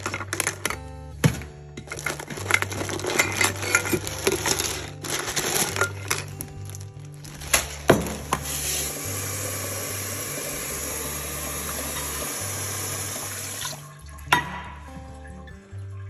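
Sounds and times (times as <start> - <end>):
tap water pouring into pot: 8.2 - 16.0.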